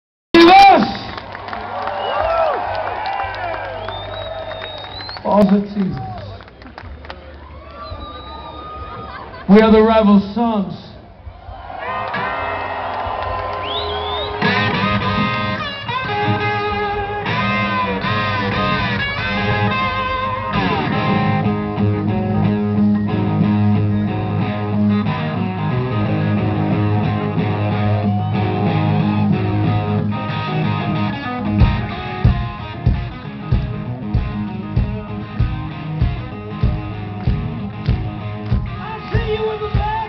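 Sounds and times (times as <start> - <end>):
live rock band: 11.2 - 40.0
electric guitar riff: 13.9 - 40.0
heavy drum hits: 31.6 - 38.8.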